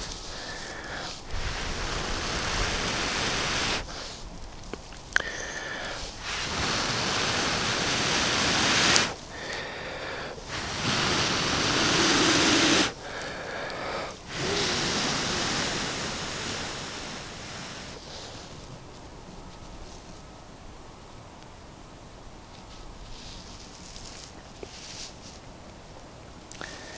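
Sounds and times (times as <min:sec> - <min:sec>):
person blowing into tinder: 0:00.0 - 0:04.2, 0:05.2 - 0:18.4
person breathing in: 0:00.0 - 0:04.2, 0:05.2 - 0:18.6, 0:26.6 - 0:26.9.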